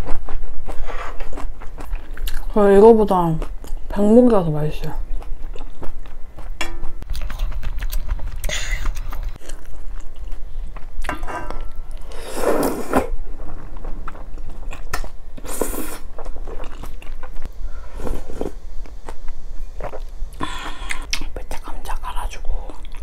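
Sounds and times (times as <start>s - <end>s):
wet chewing: 0.0s - 2.6s, 5.0s - 17.5s
slurping soup and noodles: 12.0s - 13.2s.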